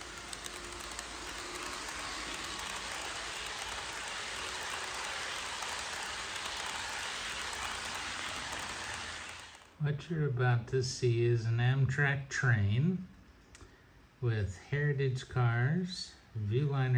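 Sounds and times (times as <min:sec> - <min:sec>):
model train wheels rushing on rail: 0:00.0 - 0:09.8.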